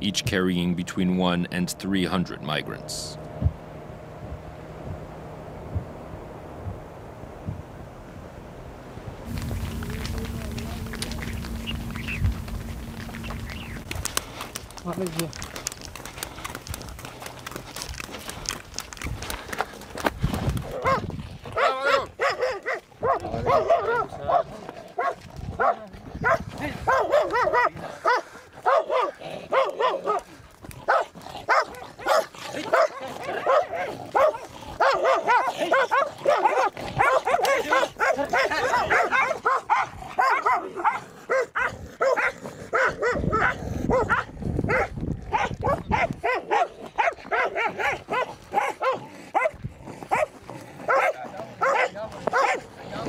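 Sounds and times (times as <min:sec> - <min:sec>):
dogs barking rapidly: 0:09.3 - 0:14.6, 0:20.6 - 0:53.0.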